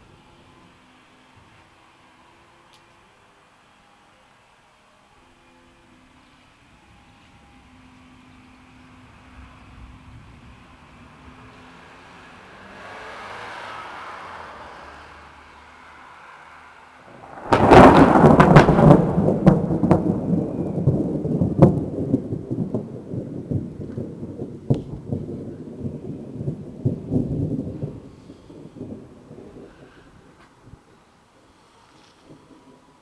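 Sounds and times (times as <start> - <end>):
thunderclap crack: 17.1 - 29.9
rolling thunder rumble: 17.1 - 30.9.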